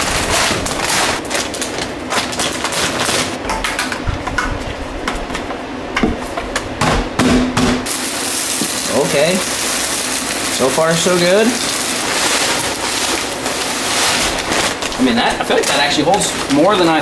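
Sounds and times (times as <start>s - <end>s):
salt granules pouring: 7.9s - 17.0s.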